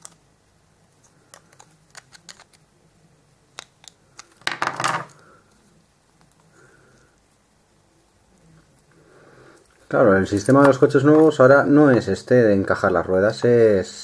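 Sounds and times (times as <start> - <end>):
knife clicking and scraping on toy: 1.3 - 2.6.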